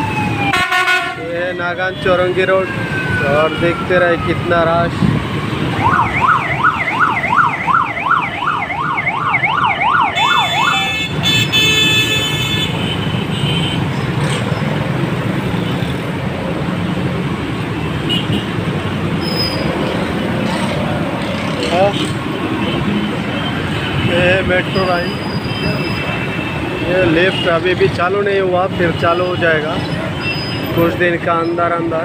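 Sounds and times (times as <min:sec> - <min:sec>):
road traffic: 0:00.0 - 0:32.0
vehicle horn blaring: 0:00.5 - 0:01.2, 0:10.2 - 0:13.8
electronic siren yelping: 0:05.7 - 0:11.1.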